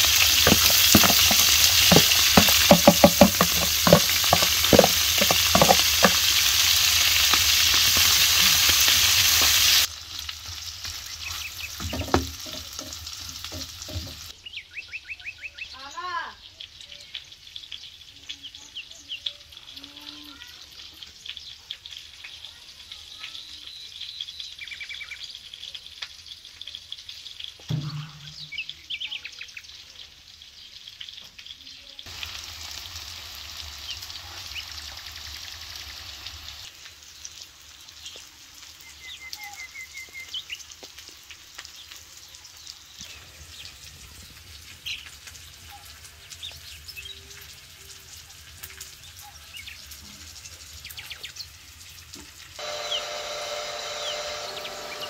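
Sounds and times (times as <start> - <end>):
steady outdoor hiss: 0.0 - 21.2
small birds chirping and trilling: 11.0 - 26.9, 28.0 - 32.0, 38.0 - 40.8, 41.6 - 51.6, 53.9 - 55.0.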